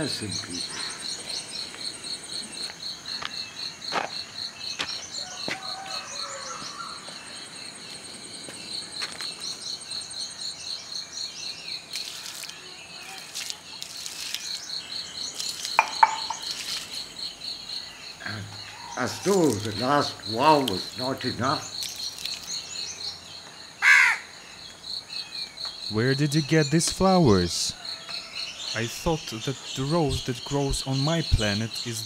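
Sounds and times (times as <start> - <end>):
birds chirping: 0.0 - 32.0
insects trilling: 0.0 - 32.0
sharp knocks: 15.8 - 16.5.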